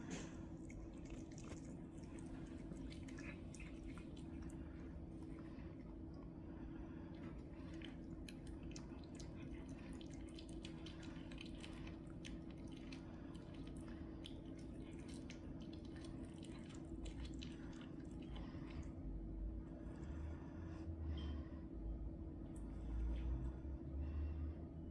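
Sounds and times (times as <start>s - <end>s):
cats crunching chicken bones: 0.0s - 6.1s, 7.1s - 18.8s.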